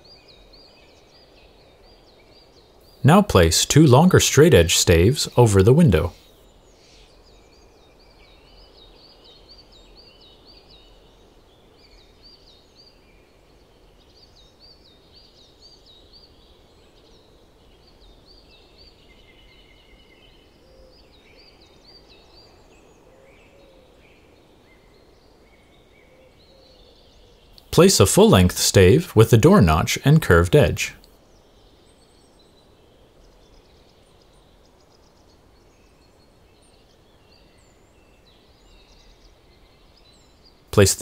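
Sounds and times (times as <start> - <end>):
low steady hiss: 0.0 - 41.0
small birds chirping: 0.0 - 41.0.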